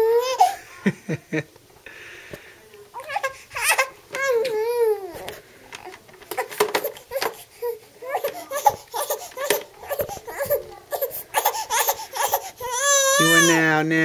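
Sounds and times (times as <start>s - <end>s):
infant fussing and sobbing: 0.0s - 0.8s, 3.0s - 13.7s.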